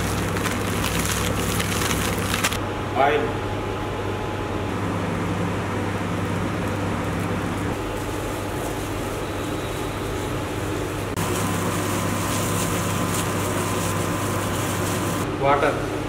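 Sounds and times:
gloved hands working flour: 0.0s - 2.6s, 6.3s - 15.3s
machine hum: 0.0s - 15.4s.

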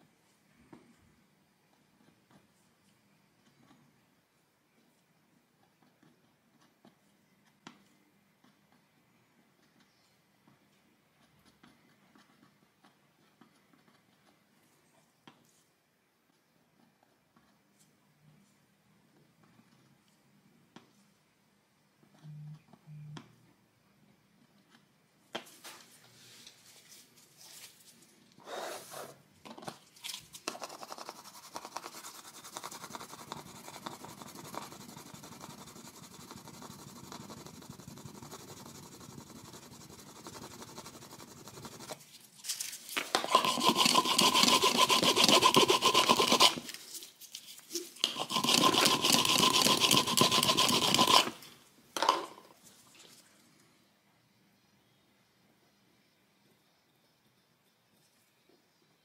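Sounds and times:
pad scrubbing laminate floor: 43.1s - 46.8s, 48.0s - 51.4s.

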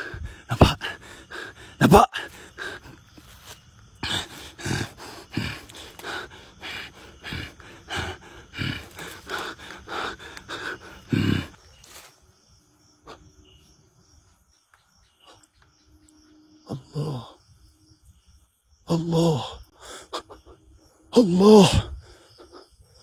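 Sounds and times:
heavy rapid breathing: 0.0s - 12.1s.

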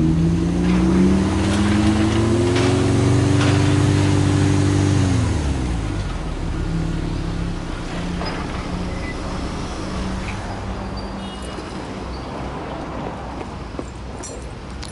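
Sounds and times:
car engine revving then idling: 0.0s - 8.0s.

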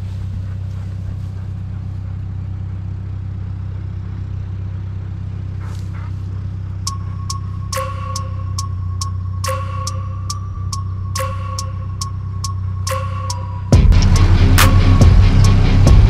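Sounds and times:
tractor engine running: 0.0s - 16.0s
music with ticks and held tones: 6.8s - 16.0s.

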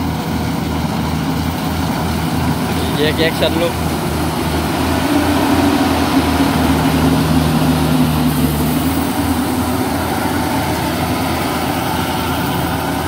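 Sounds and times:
combine harvester diesel drone: 0.0s - 13.0s.

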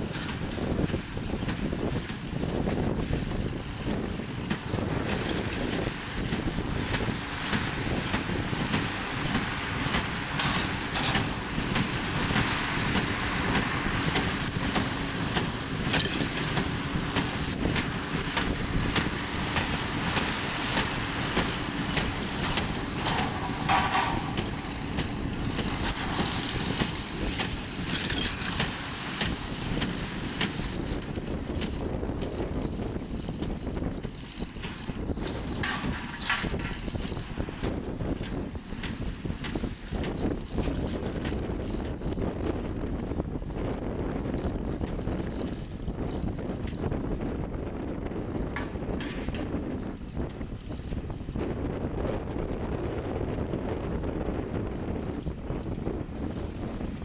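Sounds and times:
baler clattering: 0.0s - 42.7s
engine running: 0.0s - 57.0s.

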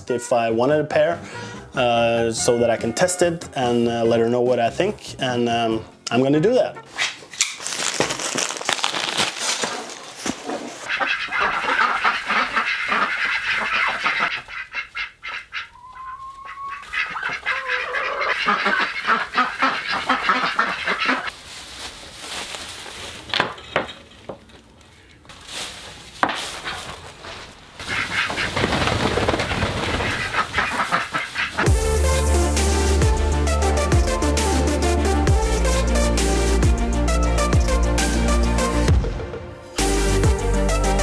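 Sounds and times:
ducks quacking: 10.7s - 21.3s, 27.8s - 31.9s
drawn-out rising call: 15.7s - 16.9s.

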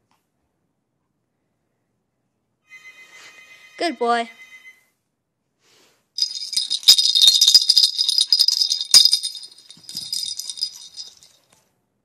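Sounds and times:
bell jingling in toy ball: 6.2s - 11.4s.

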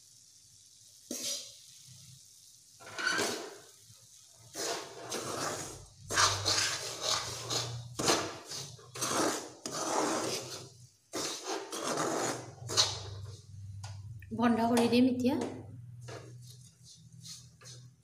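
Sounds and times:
metal spatula scraping a pan: 2.8s - 3.8s, 4.4s - 13.6s.

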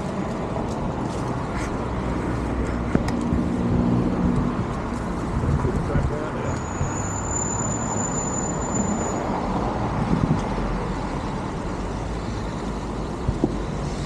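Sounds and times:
passing road traffic: 0.0s - 14.0s.

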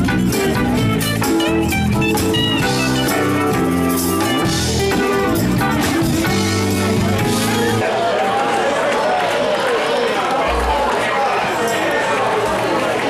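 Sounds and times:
drum kit beat: 0.0s - 7.8s
electric guitar with bent notes: 0.0s - 7.8s.

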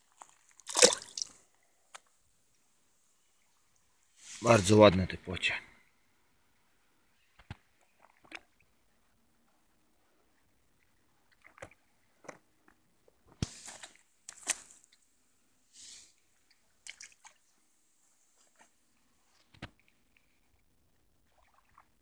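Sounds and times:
water splashes and squelches: 0.0s - 1.7s, 7.7s - 8.7s, 10.4s - 12.7s, 16.0s - 20.6s, 21.2s - 22.0s.

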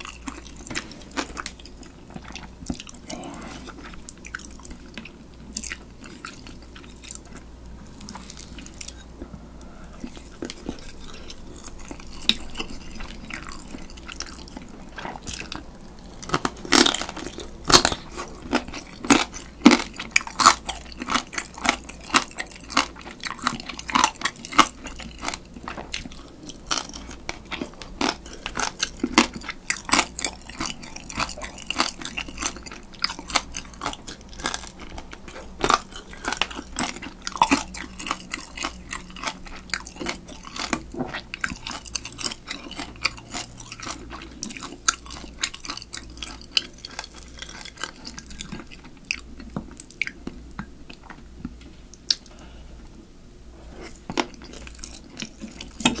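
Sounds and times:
wet chewing: 0.0s - 52.4s, 53.7s - 56.0s
crab shell crunching: 8.0s - 51.2s.

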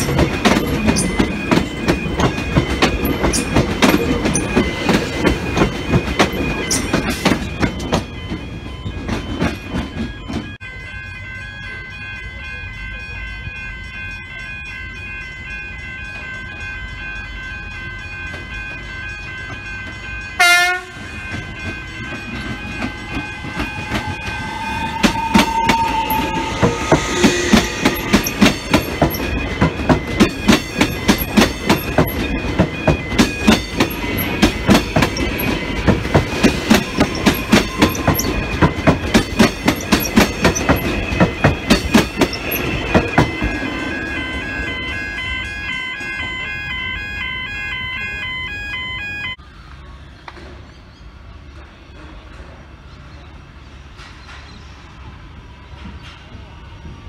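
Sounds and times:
train wheels clickety-clack: 0.0s - 10.6s, 19.4s - 44.2s, 53.9s - 54.7s
electric train whine: 0.0s - 57.0s
train horn blast: 20.4s - 21.2s, 23.3s - 28.8s.

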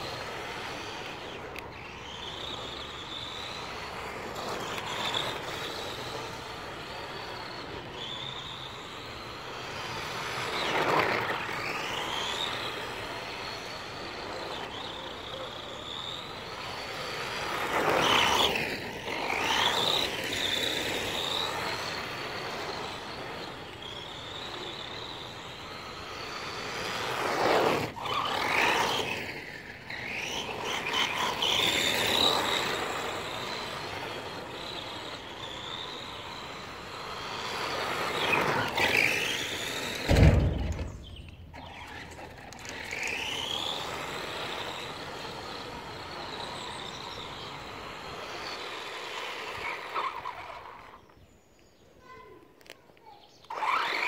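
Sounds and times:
electric motor and gears whining: 0.0s - 51.7s, 52.6s - 54.0s
tyre noise on concrete: 0.0s - 54.0s.

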